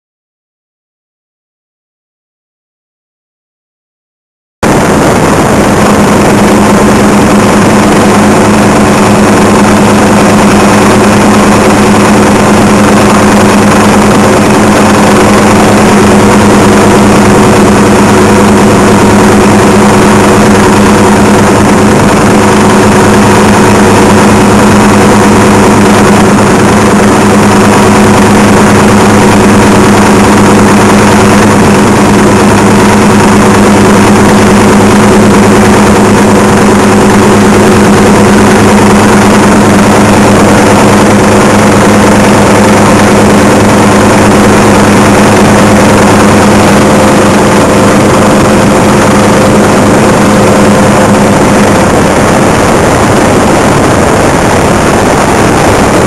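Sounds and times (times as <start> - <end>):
helicopter engine and rotor drone: 4.6 - 56.0.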